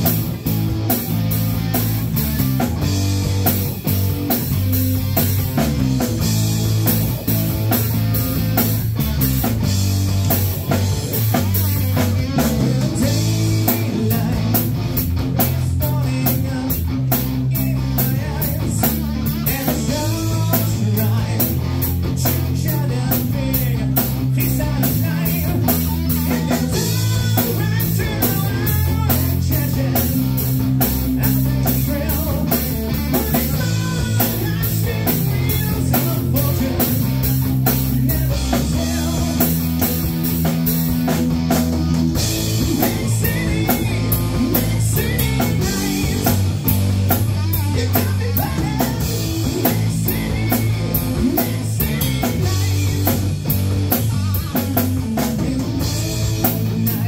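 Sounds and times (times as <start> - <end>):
electric bass: 0.0 - 57.0
live rock band: 0.0 - 57.0
overdriven electric guitar: 0.0 - 57.0
person singing: 11.7 - 14.7, 15.4 - 40.0, 41.8 - 46.5, 47.1 - 53.4.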